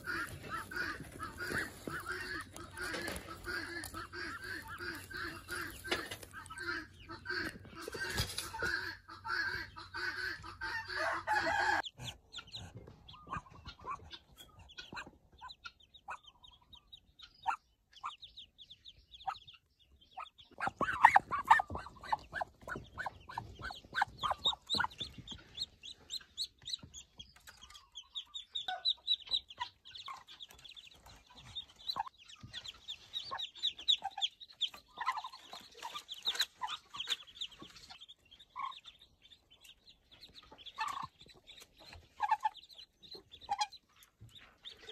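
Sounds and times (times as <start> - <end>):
rustling and scuffling in straw: 0.0 - 6.6
ducklings peeping: 0.0 - 44.9.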